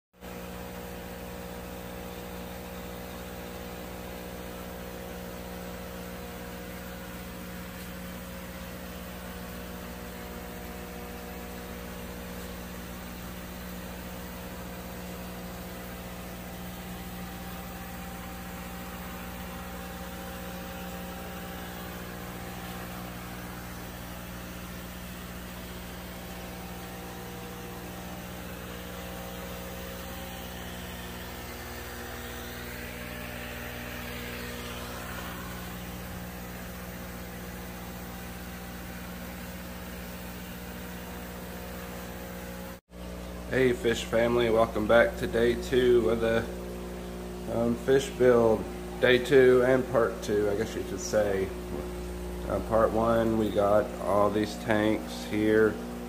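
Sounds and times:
mechanical hum: 0:00.2 - 0:56.0
constant hiss: 0:43.4 - 0:56.0.

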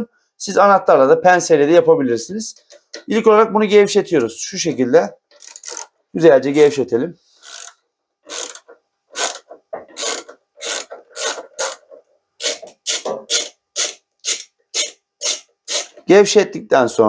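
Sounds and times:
ratchet clicking: 0:05.4 - 0:05.9, 0:07.4 - 0:16.0.

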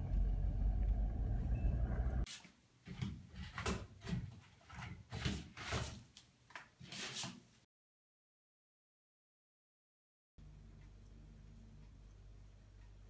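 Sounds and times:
car engine and road noise: 0:00.0 - 0:02.3.

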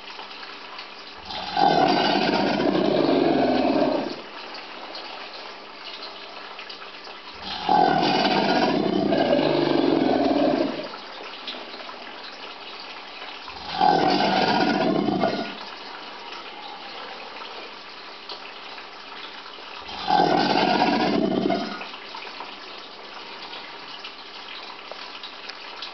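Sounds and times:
alligators bellowing: 0:01.2 - 0:04.3, 0:07.4 - 0:11.0, 0:13.6 - 0:17.7, 0:19.9 - 0:21.9.

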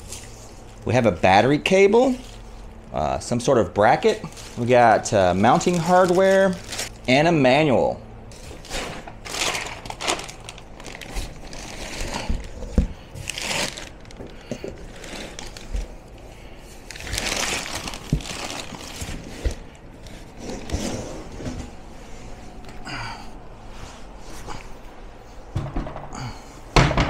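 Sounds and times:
plastic wrap rustling: 0:00.0 - 0:03.0, 0:03.8 - 0:07.0, 0:08.3 - 0:22.6
dull thumps of heavy battery: 0:25.5 - 0:27.0.

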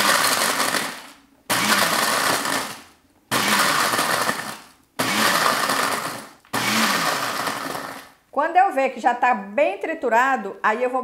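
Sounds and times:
blender pulsing: 0:00.0 - 0:08.2.

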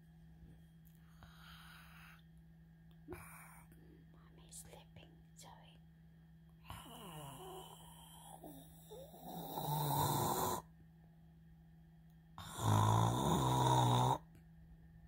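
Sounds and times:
dog snoring: 0:01.1 - 0:02.2, 0:03.1 - 0:03.8, 0:06.6 - 0:10.7, 0:12.4 - 0:14.3.

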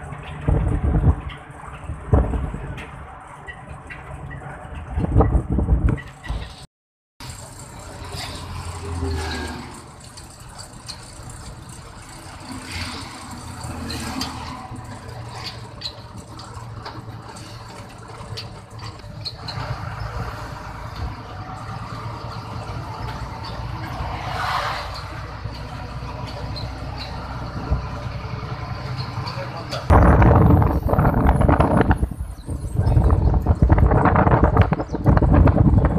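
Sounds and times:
vehicle engine and road rumble: 0:00.0 - 0:35.9.

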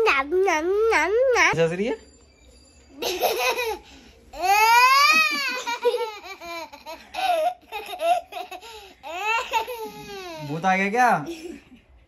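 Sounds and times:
girl laughing: 0:04.4 - 0:10.4.

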